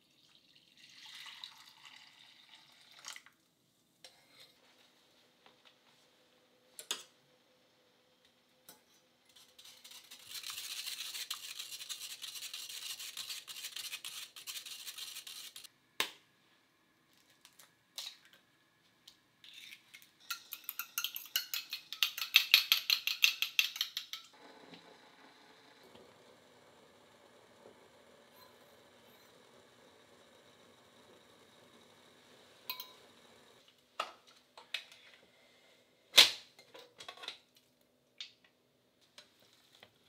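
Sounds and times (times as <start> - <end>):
scratchy rustling: 9.4 - 15.7.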